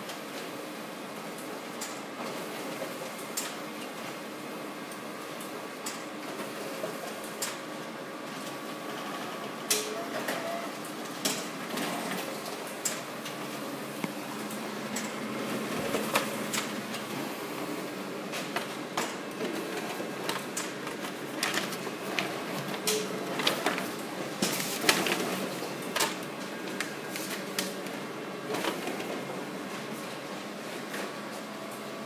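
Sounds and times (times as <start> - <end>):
copier humming: 0.0 - 32.0
paper rustling: 19.4 - 27.9.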